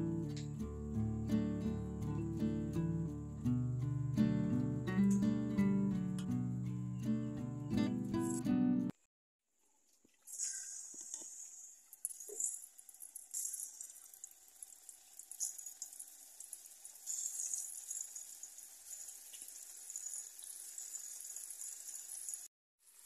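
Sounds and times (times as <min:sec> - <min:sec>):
dough frying in hot oil: 0:09.9 - 0:23.0.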